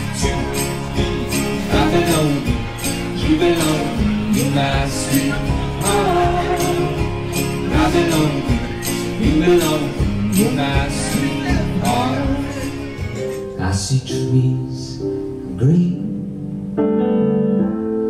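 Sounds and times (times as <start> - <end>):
acoustic guitar strumming: 0.0 - 14.0
man singing into a microphone: 0.0 - 16.2.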